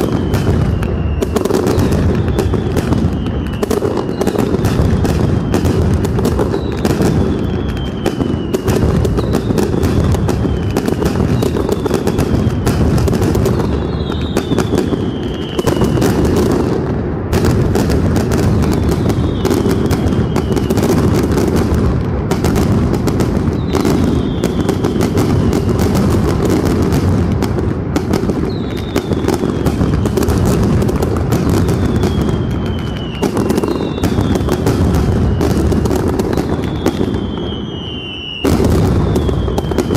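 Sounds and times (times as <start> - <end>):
falling whistle: 0.0 - 4.6, 6.5 - 12.7, 13.6 - 16.1, 18.6 - 20.9, 23.6 - 24.9, 31.7 - 34.6, 36.4 - 39.9
firecrackers banging: 0.0 - 39.9.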